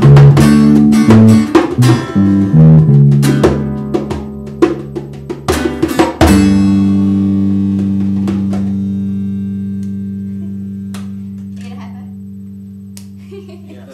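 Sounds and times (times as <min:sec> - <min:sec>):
djembe hits: 0:00.0 - 0:06.8
acoustic guitar strumming: 0:00.0 - 0:13.2
bass guitar: 0:00.0 - 0:13.9.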